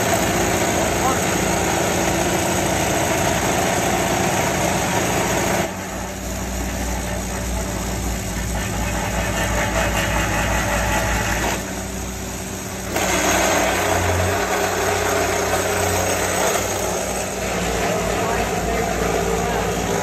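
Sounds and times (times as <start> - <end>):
track tamper machine running: 0.0 - 20.0.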